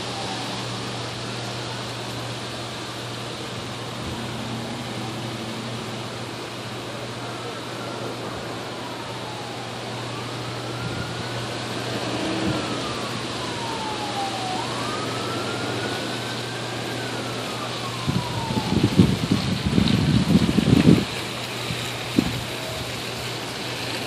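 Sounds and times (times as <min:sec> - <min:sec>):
siren wailing: 0:00.0 - 0:21.1
low crackling rumbles: 0:02.1 - 0:06.6, 0:17.8 - 0:24.0.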